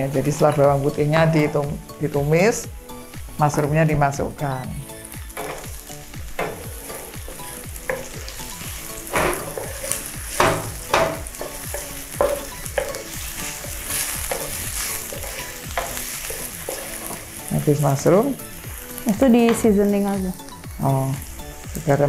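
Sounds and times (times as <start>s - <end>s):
mushrooms sizzling in oil: 0.0s - 22.0s
wooden spatula scraping pan: 6.4s - 17.3s.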